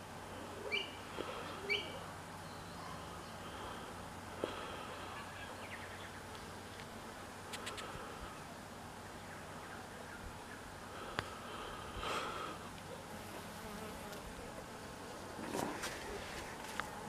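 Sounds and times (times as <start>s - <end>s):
honeybee buzzing: 10.6s - 17.0s.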